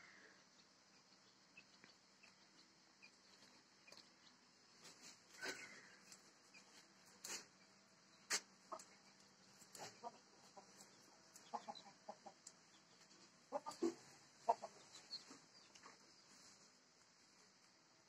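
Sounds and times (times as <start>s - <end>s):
farmyard animal calls: 3.9s - 7.6s, 8.2s - 16.0s.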